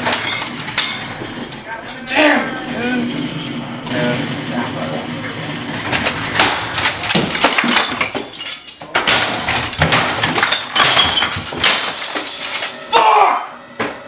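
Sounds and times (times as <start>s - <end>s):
objects crashing and banging: 0.0s - 14.0s
glass and bottles clinking: 7.1s - 12.9s.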